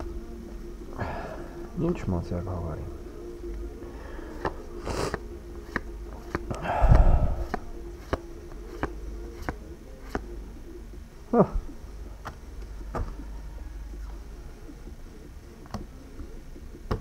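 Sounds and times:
steady low hum: 0.0 - 17.0
cards rustling: 4.2 - 6.6, 7.4 - 10.3.

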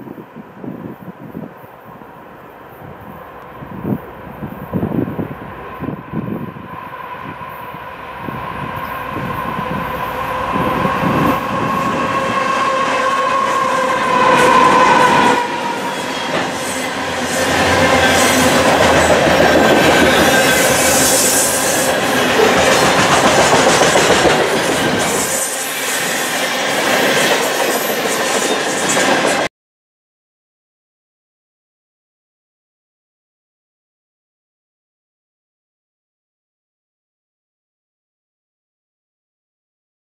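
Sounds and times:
diesel locomotives approaching: 0.1 - 29.5
train horn: 3.9 - 26.2
train wheels clattering and squealing: 7.5 - 29.5.

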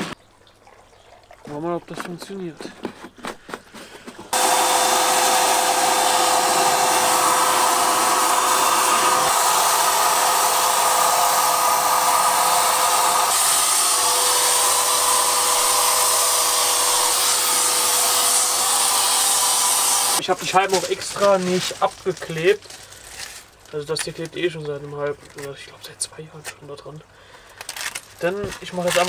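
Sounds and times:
paint spray gun blower hissing: 4.1 - 20.2.

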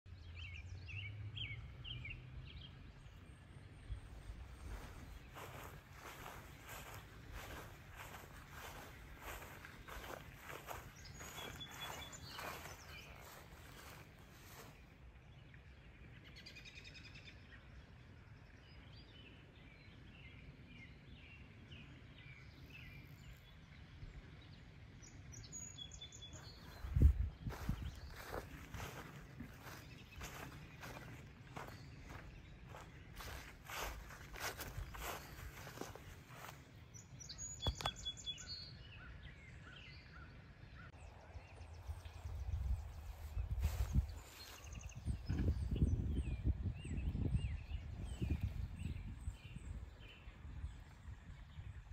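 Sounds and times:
faint birdsong: 0.1 - 51.9
steady low rumble: 26.4 - 36.9.

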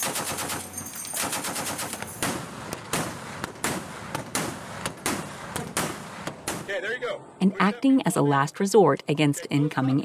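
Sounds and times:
machine gun firing: 0.0 - 6.7.

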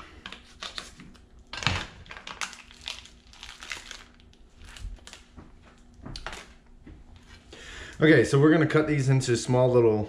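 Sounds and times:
plastic wrapper crinkling: 0.2 - 6.6.

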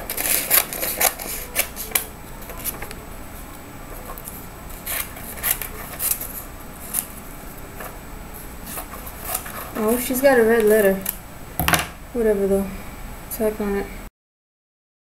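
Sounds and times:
scissors snipping paper: 0.0 - 2.9, 4.1 - 7.1
paper crackling: 0.0 - 3.0, 3.9 - 8.0, 8.6 - 11.2.

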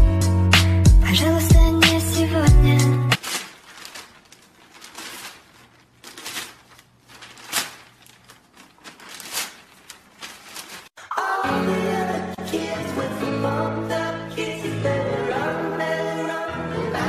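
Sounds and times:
music: 0.0 - 3.2, 11.0 - 17.0
newspaper rustling and crinkling: 3.2 - 11.0.

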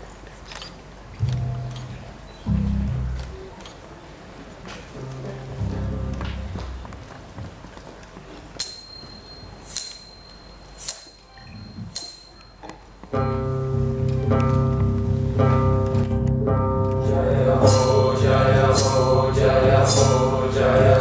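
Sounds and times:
choir with accompaniment: 16.8 - 21.0.

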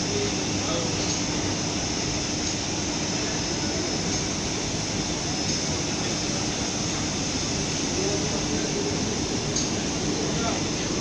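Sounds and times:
exhaust fans: 0.0 - 11.0.

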